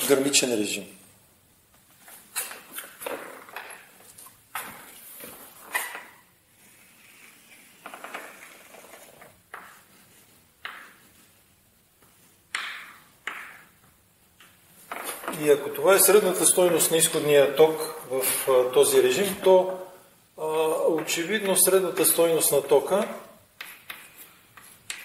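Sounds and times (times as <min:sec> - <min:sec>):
chalk tapping on blackboard: 0:09.5 - 0:11.2, 0:23.6 - 0:25.0
chalk scratching on blackboard: 0:23.6 - 0:25.0.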